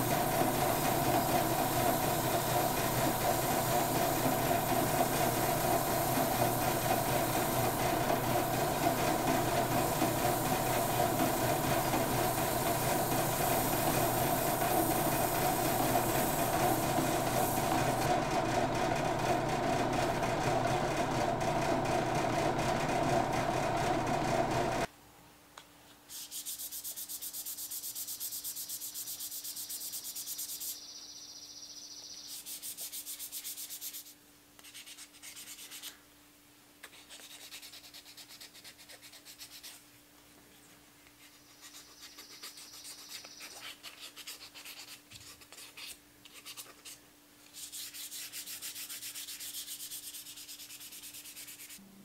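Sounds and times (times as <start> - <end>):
sandpaper sanding wood: 0.0 - 24.8, 26.1 - 30.8, 32.4 - 36.0, 36.9 - 39.8, 41.2 - 51.8.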